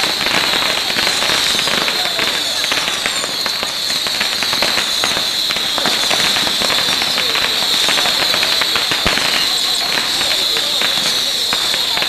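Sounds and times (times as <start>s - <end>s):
crackle of rapid pops: 0.0s - 12.0s.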